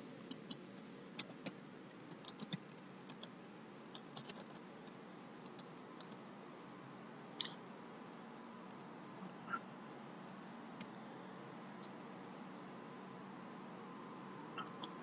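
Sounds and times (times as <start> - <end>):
keyboard typing: 1.2 - 3.3, 3.9 - 6.2.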